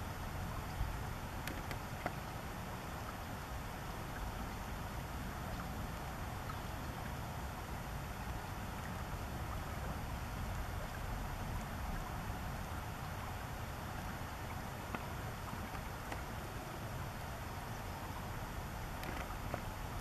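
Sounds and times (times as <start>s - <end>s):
low outdoor rumble: 0.0s - 20.0s
faint ticks: 0.7s - 2.2s, 14.0s - 16.9s, 18.8s - 20.0s.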